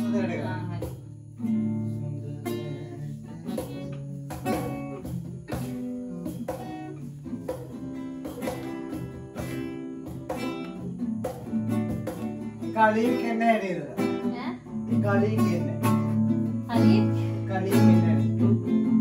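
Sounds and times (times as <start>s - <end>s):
acoustic guitar strumming chords: 0.0s - 19.0s.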